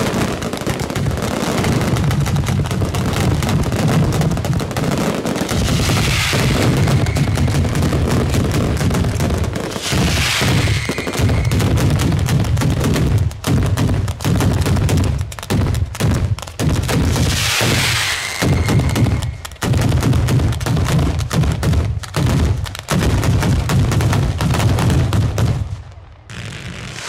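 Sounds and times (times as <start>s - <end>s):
rapid firework bangs: 0.0s - 27.0s
hissing crackle: 5.3s - 12.7s, 16.9s - 19.8s, 26.3s - 27.0s.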